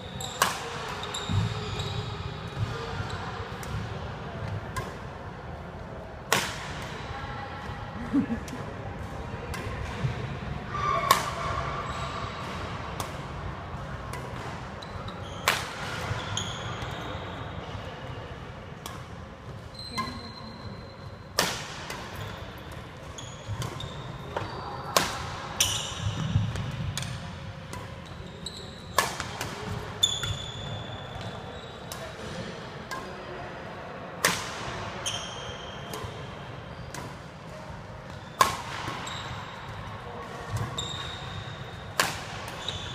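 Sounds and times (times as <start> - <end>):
rackets hitting shuttlecocks: 6.3 - 7.0, 21.3 - 22.8, 28.9 - 30.4, 35.9 - 40.7, 41.9 - 42.9.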